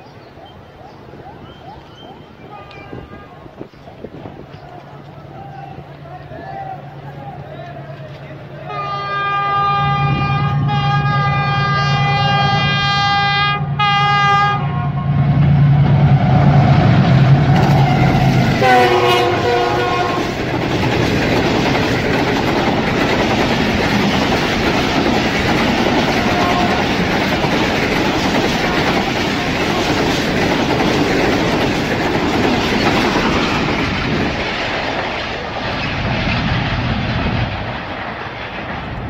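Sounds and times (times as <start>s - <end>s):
train coaches clattering past: 0.0s - 39.0s
locomotive horn: 8.6s - 15.4s, 17.5s - 20.4s, 26.1s - 27.1s.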